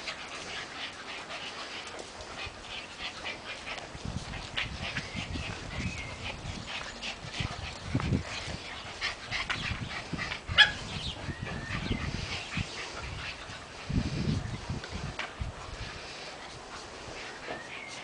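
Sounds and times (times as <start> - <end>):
puppies yipping and whimpering: 0.0 - 14.7, 16.0 - 18.0.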